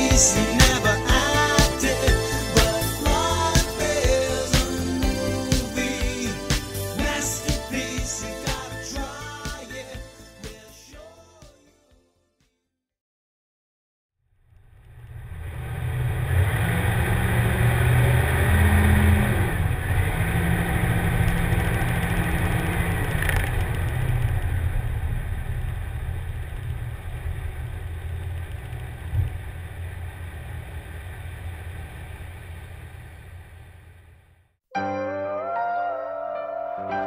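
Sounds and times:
engine running with low rumble: 0:14.4 - 0:34.6.

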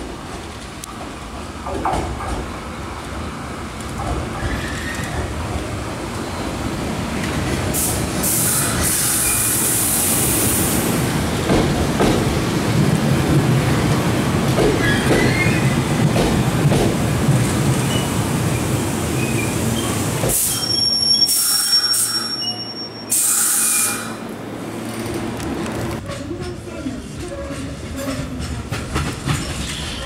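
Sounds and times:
train wheels rumbling on rails: 0:00.0 - 0:22.4, 0:23.1 - 0:30.0
high wheel squeals: 0:19.2 - 0:24.2.

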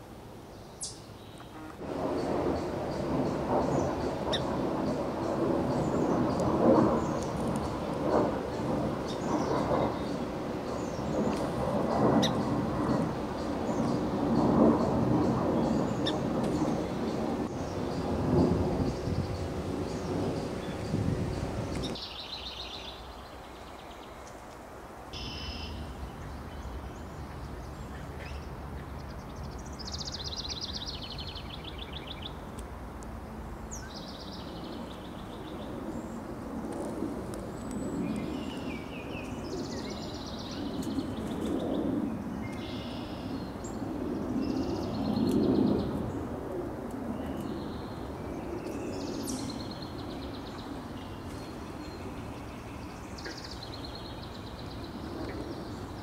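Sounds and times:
songbirds singing: 0:00.5 - 0:24.4, 0:25.2 - 0:32.5, 0:37.4 - 0:46.3, 0:47.1 - 0:56.0
low rumble: 0:01.6 - 0:22.0.

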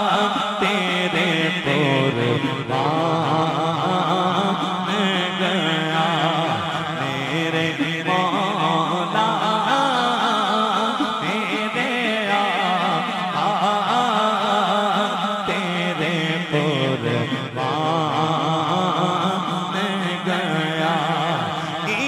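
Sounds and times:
man singing into a microphone: 0:00.0 - 0:22.0.

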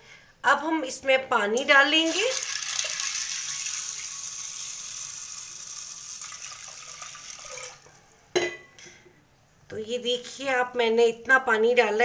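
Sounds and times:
water pouring and splashing: 0:02.0 - 0:07.9.

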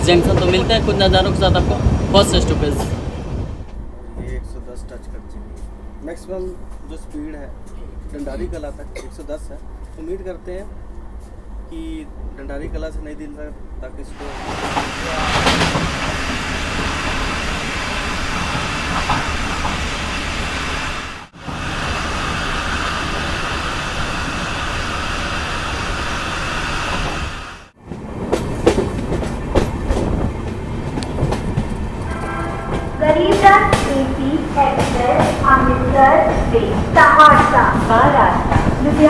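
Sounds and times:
train rumble and hiss: 0:00.0 - 0:39.0
wheels clacking over rail joints: 0:14.2 - 0:21.3, 0:27.8 - 0:39.0.

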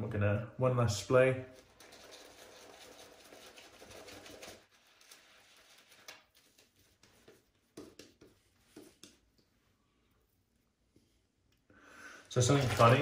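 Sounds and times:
shaving brush swishing lather: 0:01.6 - 0:09.2
soft taps and clicks: 0:07.2 - 0:09.5.

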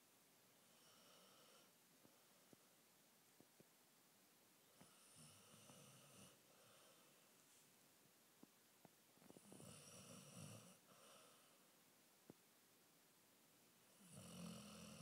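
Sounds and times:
dog snoring: 0:04.8 - 0:07.0, 0:09.3 - 0:11.4, 0:13.9 - 0:15.0.

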